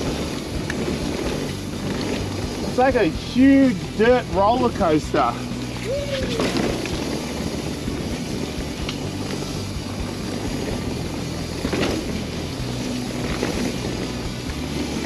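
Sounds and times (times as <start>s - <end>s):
bike tyre rumble: 0.0s - 15.0s
bike clattering over bump: 11.5s - 14.3s.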